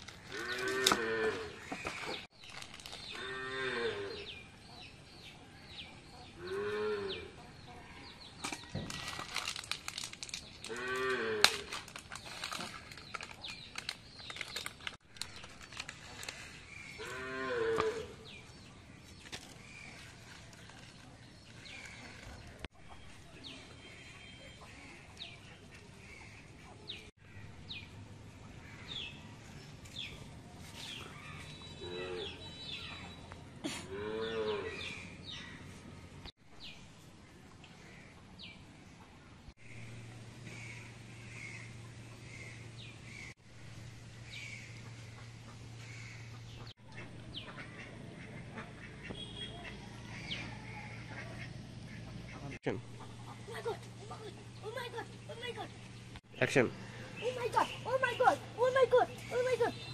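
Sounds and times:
handling rustling and crackling: 0.0s - 3.2s, 8.4s - 17.1s, 19.0s - 22.7s.

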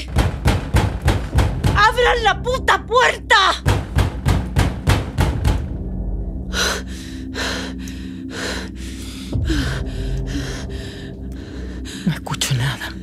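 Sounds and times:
rapid pounding on a door: 0.0s - 2.3s, 3.6s - 5.7s
low music drone: 0.4s - 13.0s.

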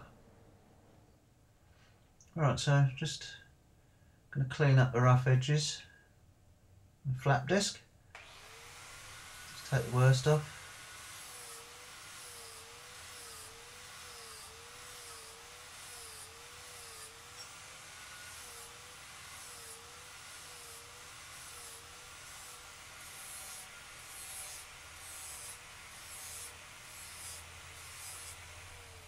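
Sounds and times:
angle grinder grinding steel: 8.2s - 29.0s.

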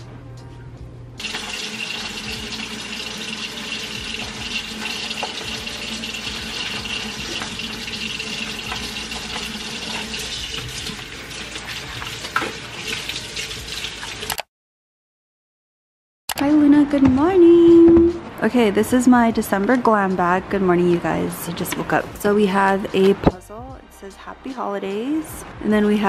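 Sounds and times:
tap running into sink: 1.2s - 11.2s, 11.8s - 14.3s
pot being scrubbed: 1.2s - 14.3s.

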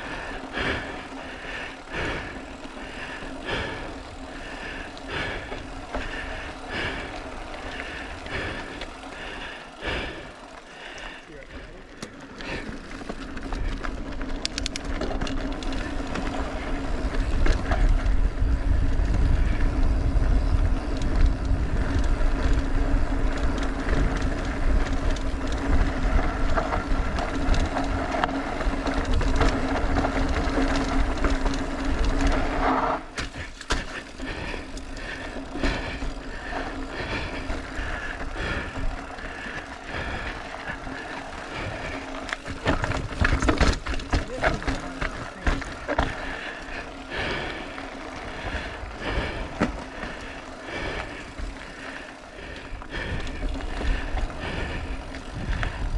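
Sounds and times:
bike rattling over rough trail: 0.0s - 55.9s
steady hum: 0.0s - 55.9s
wind rush on microphone: 15.7s - 32.6s, 48.3s - 55.9s.

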